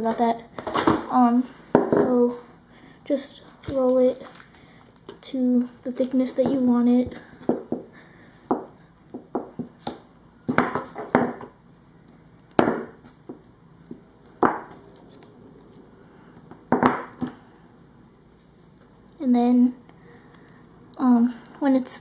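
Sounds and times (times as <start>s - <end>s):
rolling pin knocking on clay: 8.5s - 11.5s, 12.6s - 13.4s, 16.7s - 17.3s.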